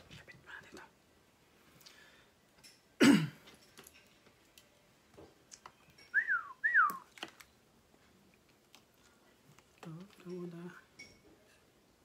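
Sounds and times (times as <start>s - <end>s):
whistle-like chirps: 6.1s - 7.1s.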